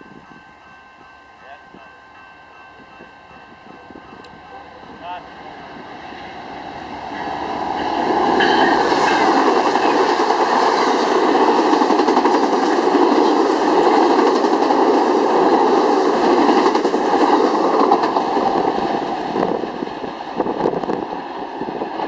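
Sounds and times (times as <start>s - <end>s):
diesel locomotive passing: 0.0s - 22.0s
train cars rolling on wheels: 6.1s - 22.0s.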